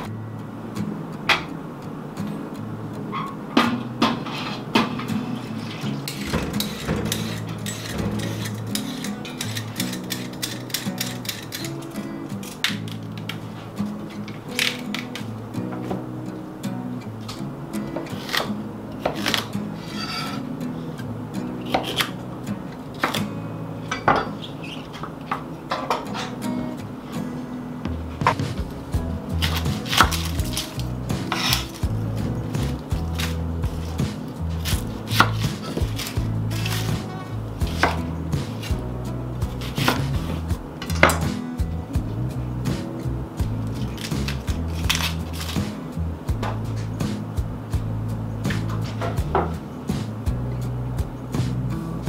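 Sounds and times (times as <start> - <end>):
background music: 0.0 - 52.0
scraping of cut pieces: 4.1 - 15.3, 17.9 - 20.5, 29.3 - 38.8, 39.4 - 41.3, 43.6 - 45.8
knife chopping on wooden board: 29.4 - 32.0, 32.6 - 37.0, 37.6 - 38.8.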